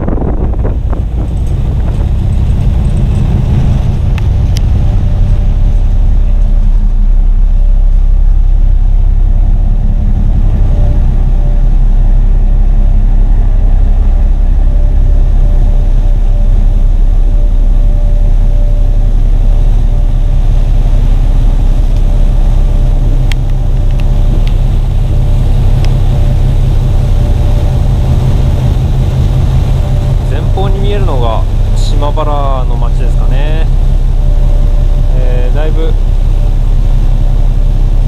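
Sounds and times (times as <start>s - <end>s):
faint steady hum: 0.0s - 38.0s
ship engines rumbling: 0.0s - 38.0s
wind buffeting microphone: 0.0s - 38.0s
light ticks: 4.1s - 4.7s.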